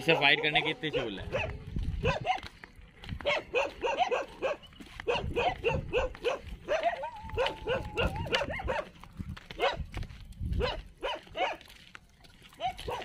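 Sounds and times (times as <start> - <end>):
dog barking: 0.0 - 2.5, 3.2 - 9.0, 9.6 - 9.9, 10.6 - 11.7, 12.6 - 13.0.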